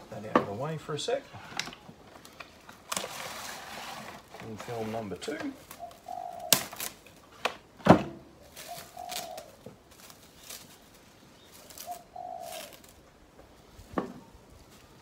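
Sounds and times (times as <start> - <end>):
cling film crinkling and snapping: 1.6 - 4.6, 5.4 - 7.6
bird cooing: 5.7 - 6.7, 8.4 - 10.1, 11.4 - 13.0.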